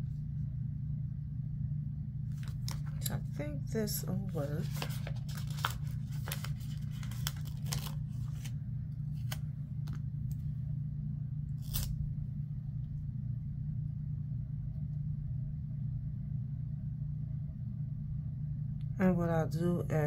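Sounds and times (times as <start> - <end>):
steady low hum: 0.0 - 20.0
stickers peeling and clicking: 4.6 - 8.5, 9.1 - 10.4, 11.6 - 12.0.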